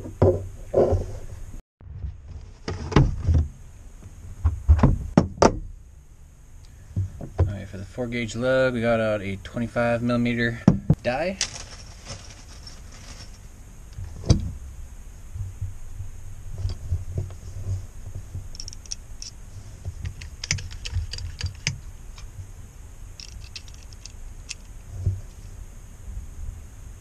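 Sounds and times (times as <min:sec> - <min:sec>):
crimping tool clicking metal: 0:18.6 - 0:19.4, 0:23.2 - 0:24.7.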